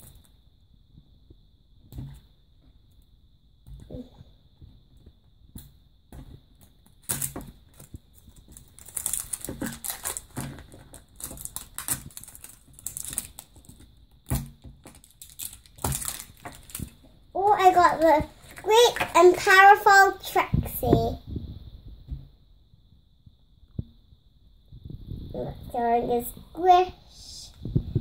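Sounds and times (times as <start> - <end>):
plastic wrapping crinkling and tearing: 7.0 - 20.4.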